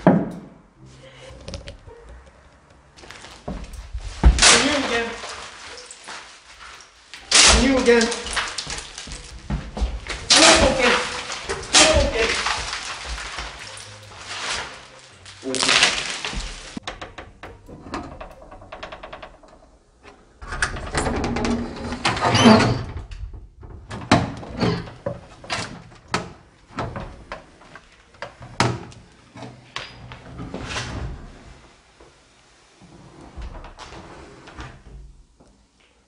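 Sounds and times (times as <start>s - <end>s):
door scraping and rustling: 1.0s - 35.2s
door knocks clicks and rattles: 16.2s - 27.6s.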